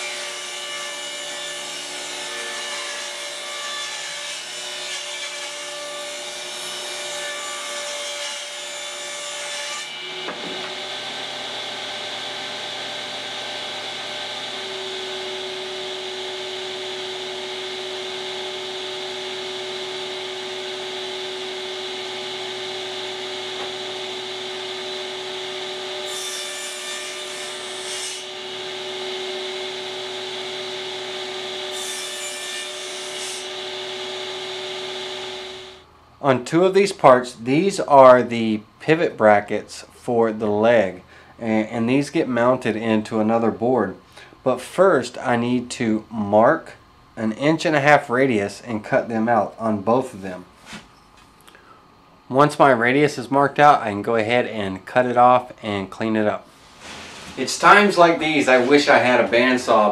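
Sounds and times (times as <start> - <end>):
saw blade cutting wood: 0.0 - 35.8, 56.8 - 59.9
table saw running: 0.0 - 35.8, 56.8 - 59.9.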